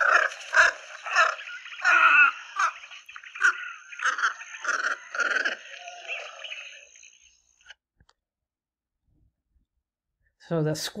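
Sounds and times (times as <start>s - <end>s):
heron squawking: 0.0s - 6.9s.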